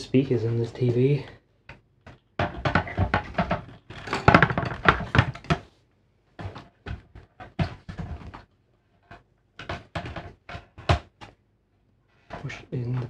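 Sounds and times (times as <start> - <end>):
plastic knocks and rattles: 1.7 - 5.8, 6.4 - 11.4.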